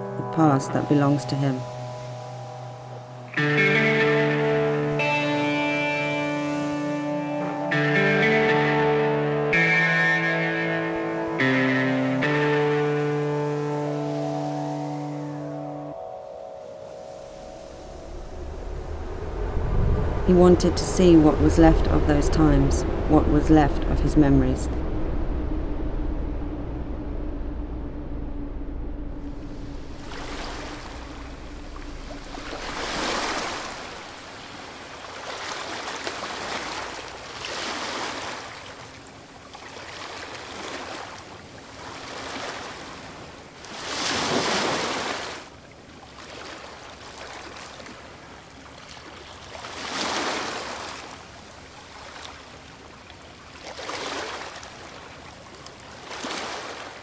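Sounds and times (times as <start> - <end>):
sea waves washing on shore: 29.8 - 57.0.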